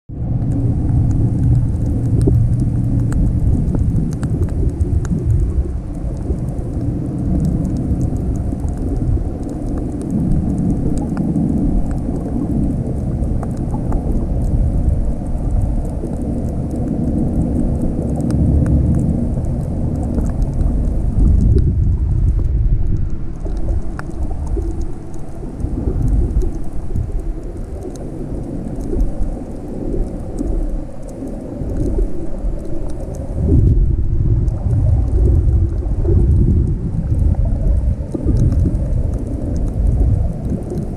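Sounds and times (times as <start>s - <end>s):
low rumble of moving water: 0.0s - 40.9s
faint crackling clicks: 0.3s - 40.9s.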